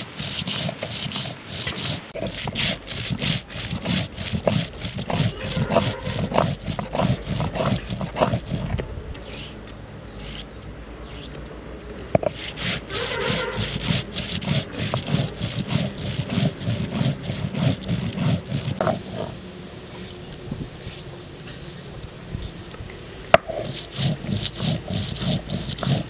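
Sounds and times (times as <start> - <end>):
stone roller scraping grinding stone: 0.0 - 9.6, 12.1 - 19.4, 23.4 - 26.0.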